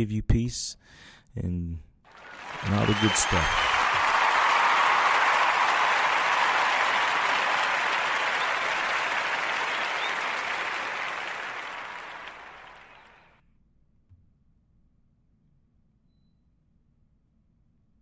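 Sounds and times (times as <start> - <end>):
applause: 2.1 - 13.4.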